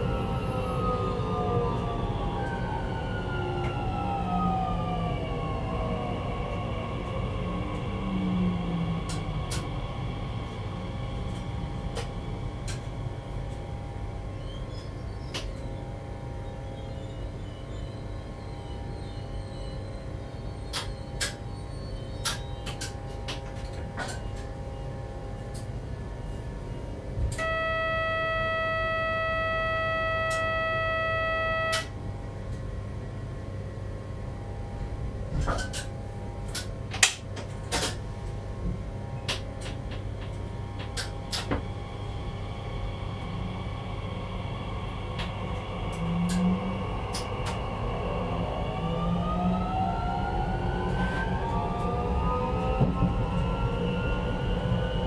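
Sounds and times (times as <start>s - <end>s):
train cab low hum: 0.0s - 55.0s
steady warning tone: 24.6s - 32.1s.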